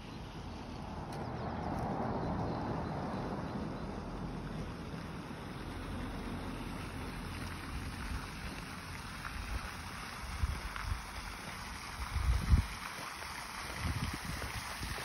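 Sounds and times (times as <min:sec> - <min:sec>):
wind on microphone: 0:12.0 - 0:12.8, 0:13.6 - 0:15.0.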